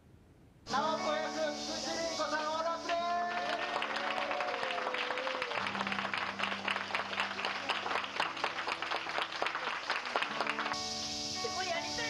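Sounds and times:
people applauding: 2.4 - 12.0
background music with long notes: 5.6 - 12.0.

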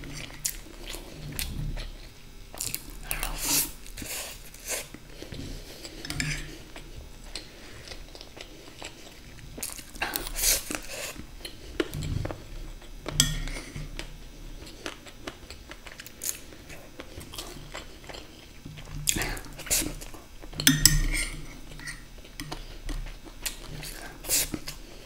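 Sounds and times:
close-up chewing: 0.0 - 20.6, 21.2 - 25.0.

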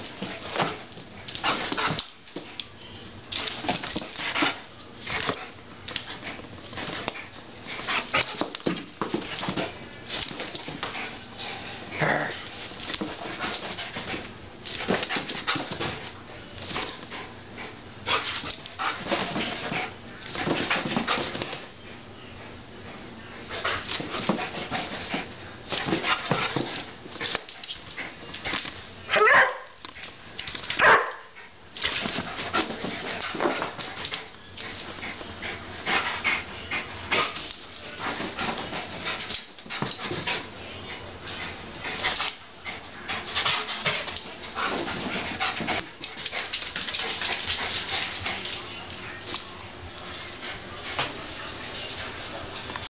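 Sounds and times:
paws scuffling and thumping: 0.0 - 2.6, 3.3 - 21.8, 23.4 - 28.9, 29.8 - 52.9
dog barking: 29.1 - 29.8, 30.8 - 31.3.

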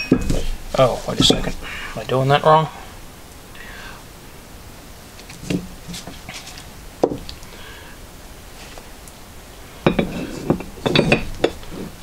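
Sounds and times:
metal clank: 0.0 - 1.6, 9.9 - 11.6
steel parts knocking and clicking: 0.0 - 1.6, 9.9 - 11.6.

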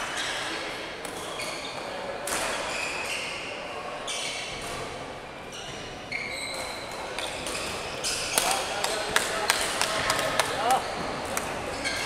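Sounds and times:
shoes squeaking on floor: 1.2 - 1.9, 2.5 - 4.6, 5.5 - 8.6, 11.7 - 12.0.

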